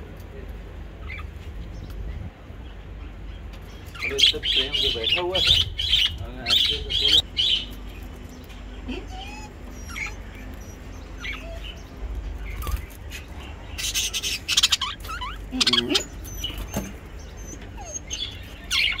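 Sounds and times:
budgerigars chirping: 1.0s - 2.0s, 2.6s - 19.0s
harsh squawking: 13.8s - 19.0s.

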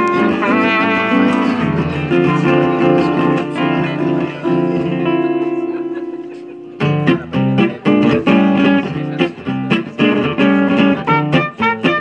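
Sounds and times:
trumpet playing swing tune: 0.0s - 5.2s, 10.3s - 12.0s
acoustic guitar: 0.0s - 12.0s.

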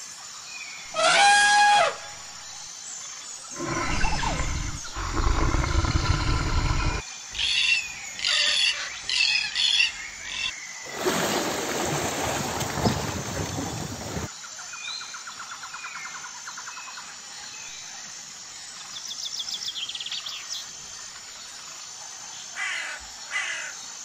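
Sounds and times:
harsh cockatoo calls: 1.0s - 2.0s, 3.6s - 7.0s
elephants rumbling: 3.6s - 7.0s
seals: 3.6s - 7.0s.

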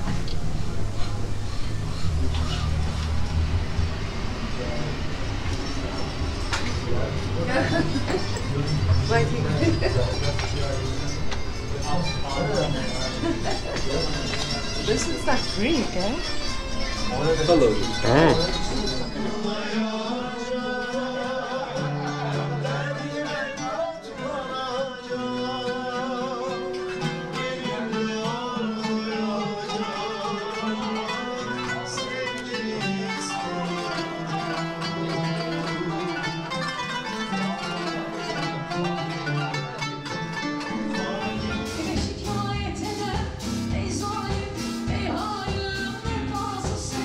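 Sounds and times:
plucked zither: 0.0s - 23.8s, 29.3s - 43.2s
oud playing: 0.0s - 47.0s
man singing: 17.0s - 47.0s.

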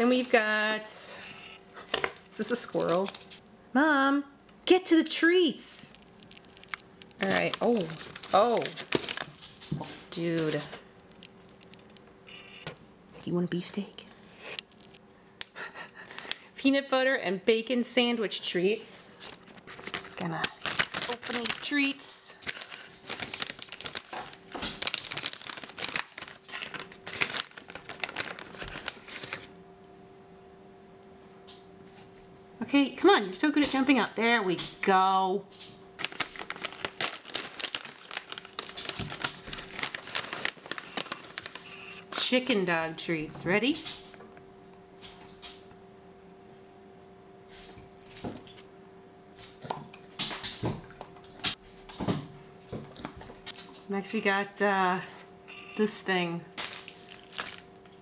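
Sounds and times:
steady low hum: 0.0s - 58.0s
plastic pouch tearing and crinkling: 5.9s - 12.1s, 19.2s - 29.5s, 36.0s - 42.3s, 56.5s - 57.8s.

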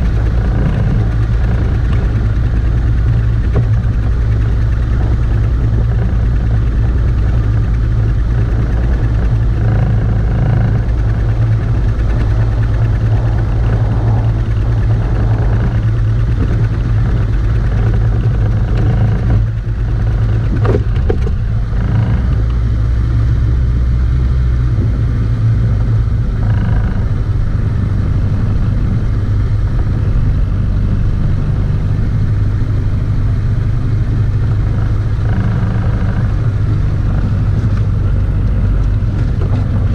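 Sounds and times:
water noise: 0.0s - 23.0s
outboard motor humming: 0.0s - 39.9s
wind noise: 0.0s - 39.9s.

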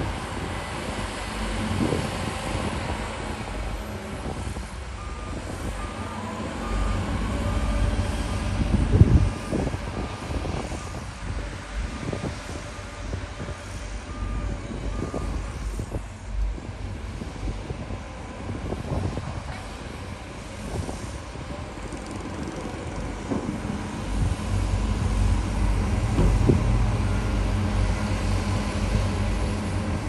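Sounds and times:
diesel engines rumbling: 0.0s - 30.0s
reversing alarm beeping: 5.0s - 10.1s, 13.5s - 15.6s.

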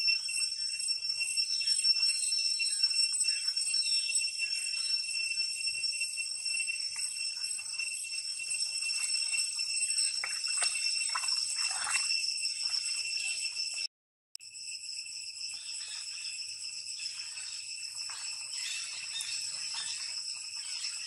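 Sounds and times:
insects ringing chorus: 0.0s - 21.0s
water splashes: 10.1s - 13.4s.

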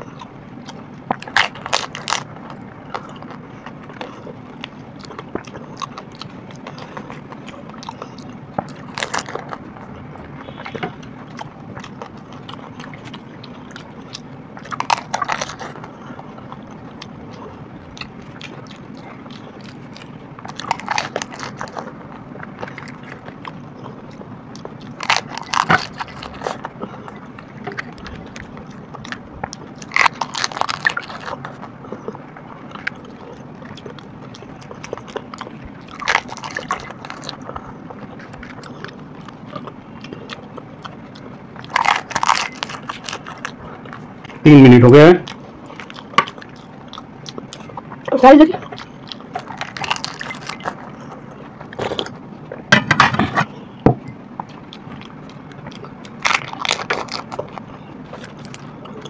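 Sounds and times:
low background hum: 0.0s - 59.0s
crisp shells crunching: 1.0s - 9.8s, 10.4s - 23.6s, 24.6s - 44.1s, 48.8s - 52.2s, 54.5s - 59.0s.

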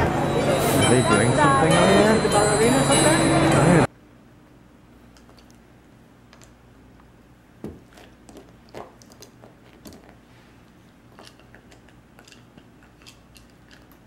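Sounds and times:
puppy chewing toy: 11.1s - 14.0s.

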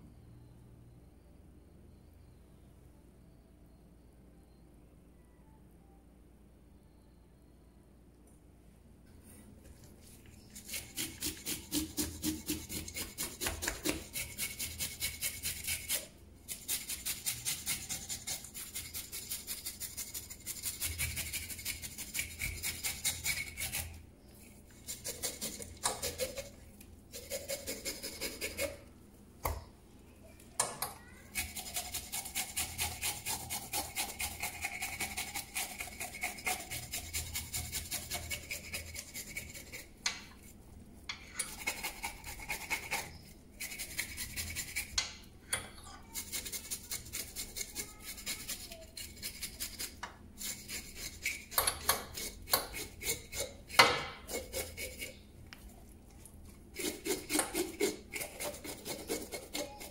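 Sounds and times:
fish scaler scraping scales: 10.3s - 28.8s, 31.3s - 40.5s, 41.1s - 45.0s, 46.0s - 55.2s, 56.7s - 59.9s.

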